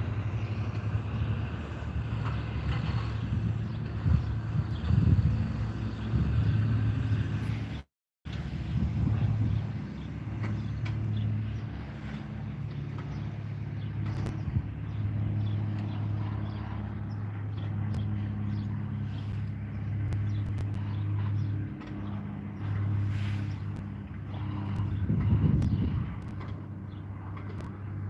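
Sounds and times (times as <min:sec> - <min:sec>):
vehicle engine idling hum: 0:00.0 - 0:28.0.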